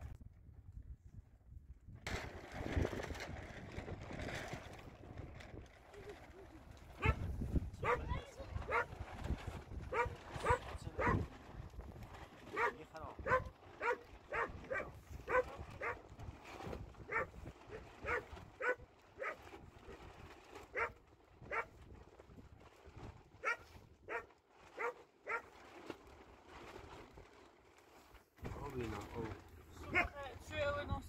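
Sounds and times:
dog barking: 7.0 - 7.2, 7.8 - 8.1, 8.7 - 8.9, 9.9 - 11.2, 12.5 - 16.0, 17.1 - 17.3, 18.0 - 19.4, 20.8 - 21.7, 23.4 - 25.4.

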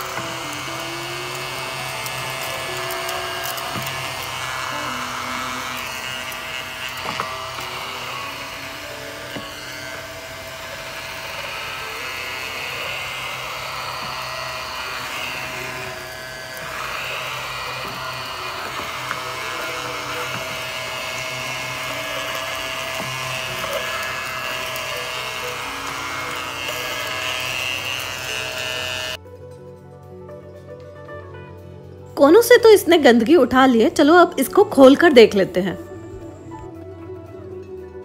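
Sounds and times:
vacuum cleaner motor whine: 0.0 - 29.2
light background music: 0.0 - 38.0.

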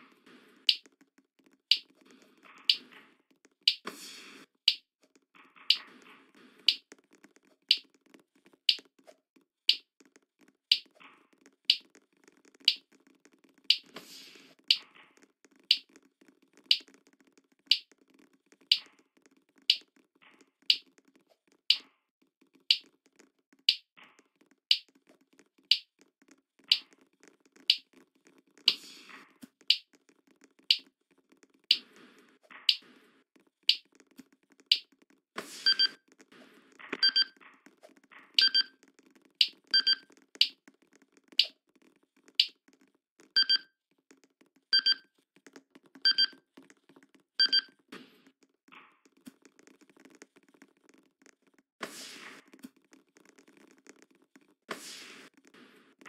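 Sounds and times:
sharp ticks: 0.7 - 0.9, 3.6 - 3.9, 12.6 - 12.8, 16.7 - 16.9, 17.7 - 17.9, 24.7 - 24.9
short electronic beeps: 35.7 - 36.0, 37.0 - 37.3, 38.4 - 38.7, 39.8 - 40.0, 44.8 - 45.0, 46.1 - 46.3, 47.4 - 47.7.

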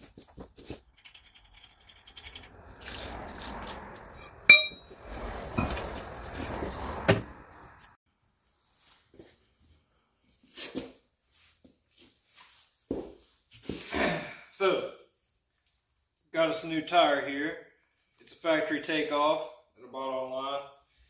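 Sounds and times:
rustling and scraping: 0.0 - 8.0
sharp ringing metallic clink: 4.5 - 4.9.

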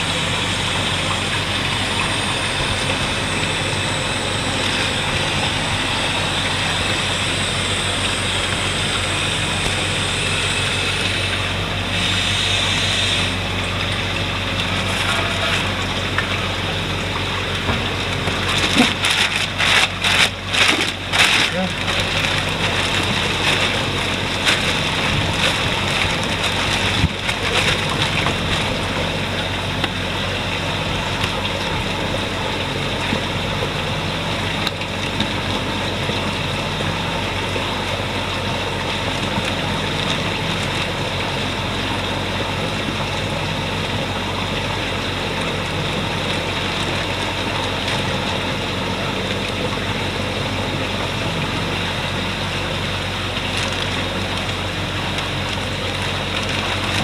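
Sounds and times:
mechanical hum: 0.0 - 57.0
rushing water-like noise: 0.0 - 57.0
plastic bag crinkling: 18.3 - 29.0.

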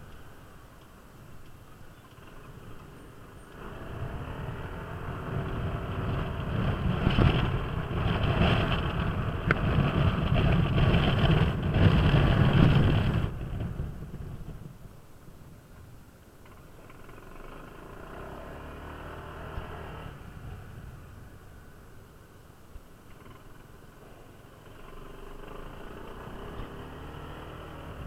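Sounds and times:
scooter engine pulling away: 2.0 - 14.0, 16.4 - 21.6, 23.1 - 28.0
wind noise: 3.6 - 16.0.

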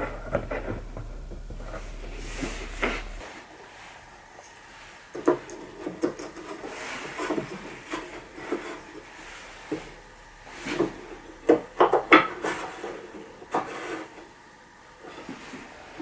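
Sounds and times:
wooden boards knocking and sliding: 0.0 - 3.2.

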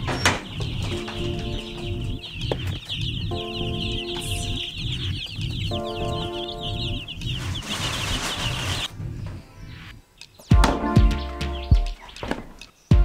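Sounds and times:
chicks peeping: 0.0 - 13.0
background music with steady beat: 0.6 - 7.4, 9.4 - 13.0.

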